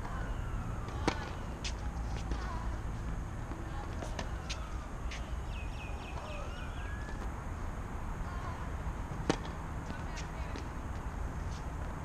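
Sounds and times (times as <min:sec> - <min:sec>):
low outdoor rumble: 0:00.0 - 0:12.0
tennis racket hitting ball: 0:00.9 - 0:02.7, 0:09.1 - 0:10.7.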